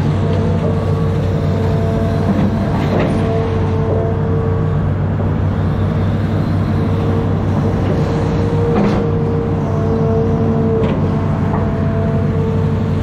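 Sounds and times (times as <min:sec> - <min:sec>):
constant machine whine: 0:00.0 - 0:13.0
diesel engine droning: 0:00.0 - 0:13.0.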